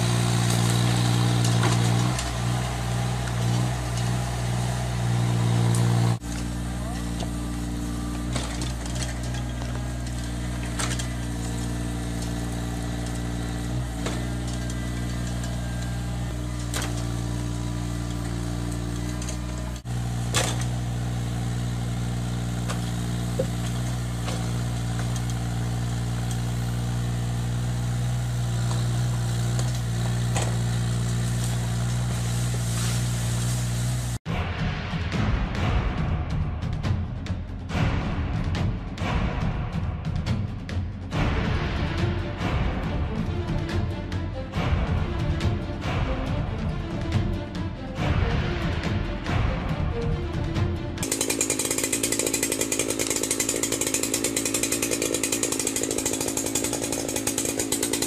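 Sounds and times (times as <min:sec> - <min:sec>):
excavator engine running: 0:00.0 - 0:34.2, 0:37.4 - 0:58.0.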